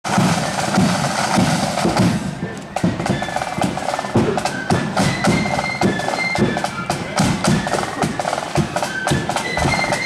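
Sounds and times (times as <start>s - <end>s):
high notes: 0.1s - 10.0s
snare drum rolls: 0.1s - 10.0s.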